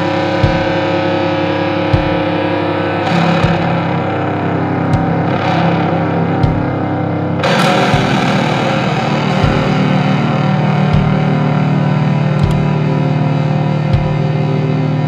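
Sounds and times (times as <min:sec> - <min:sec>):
distorted guitar chords: 0:00.0 - 0:15.0
low drum hits: 0:03.1 - 0:04.0, 0:04.8 - 0:06.9, 0:07.5 - 0:10.0, 0:10.8 - 0:11.4.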